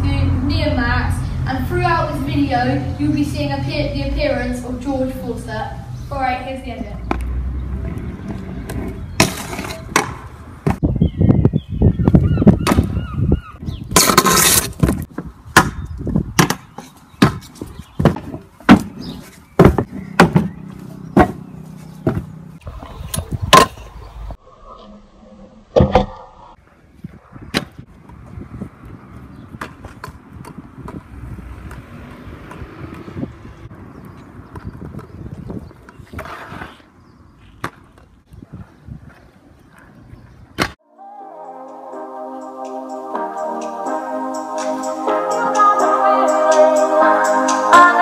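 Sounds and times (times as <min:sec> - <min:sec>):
scooter wheels rolling on concrete: 0:06.1 - 0:10.8, 0:13.9 - 0:15.4, 0:27.8 - 0:40.8
scooter decks clacking: 0:07.8 - 0:10.8.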